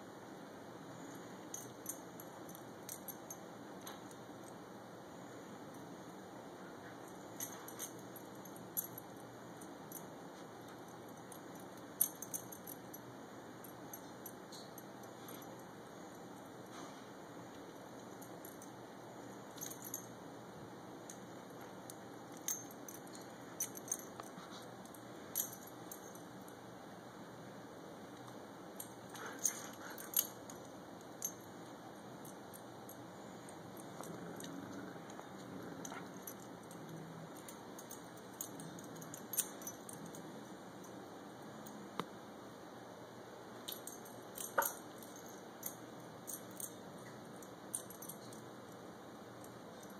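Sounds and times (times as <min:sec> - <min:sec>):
metal dog tags jingling: 0:07.3 - 0:09.2, 0:11.1 - 0:13.0, 0:21.1 - 0:26.3, 0:28.8 - 0:31.5, 0:32.2 - 0:41.0, 0:43.7 - 0:48.4.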